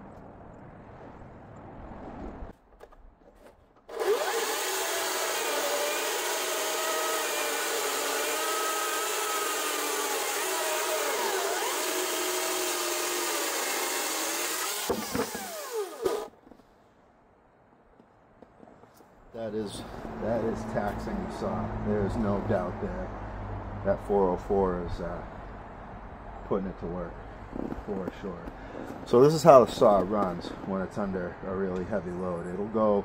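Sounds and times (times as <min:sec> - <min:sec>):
electric chainsaw cutting log: 0:03.9 - 0:16.3.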